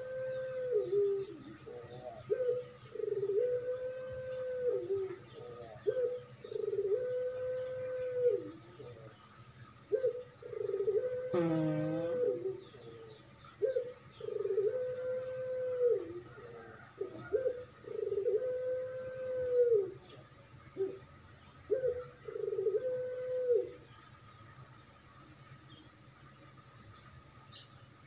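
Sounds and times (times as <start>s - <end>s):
dove cooing: 0.0s - 8.6s, 9.9s - 11.4s, 13.6s - 20.0s, 21.7s - 23.8s.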